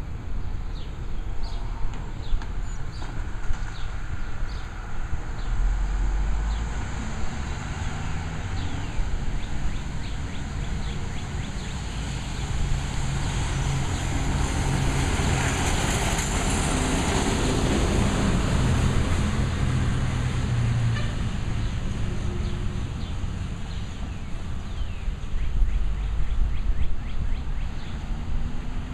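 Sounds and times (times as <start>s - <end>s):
birds chirping: 7.4s - 12.6s.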